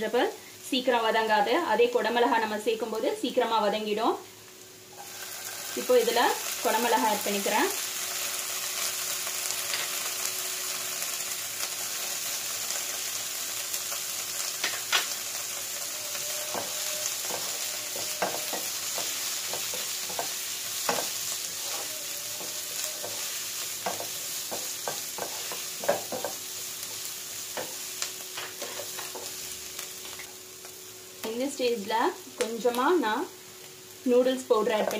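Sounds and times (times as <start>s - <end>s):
vegetables sizzling in oil: 0.0s - 34.9s.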